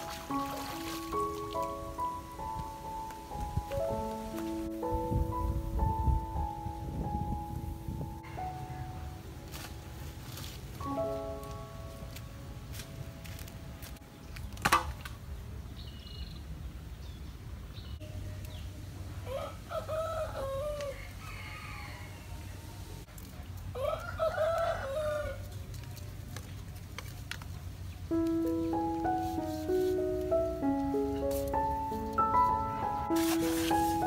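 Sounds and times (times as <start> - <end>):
rooster crowing: 19.2 - 23.0, 23.8 - 25.4.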